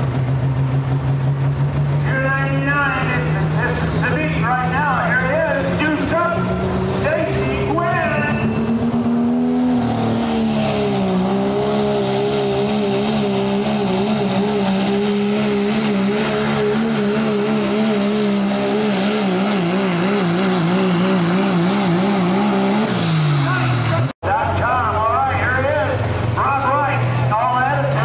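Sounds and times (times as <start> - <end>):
diesel truck engine at full throttle: 0.0 - 28.0.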